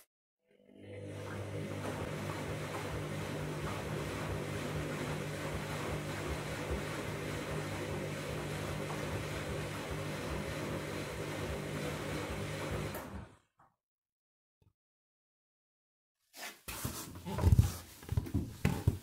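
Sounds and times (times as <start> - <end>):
washing machine running: 0.5 - 13.4.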